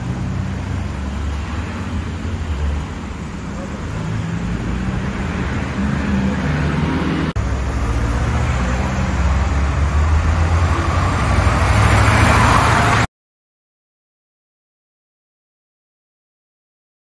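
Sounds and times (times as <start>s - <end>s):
vehicle engine running: 0.0s - 11.9s
street traffic noise: 0.0s - 13.1s.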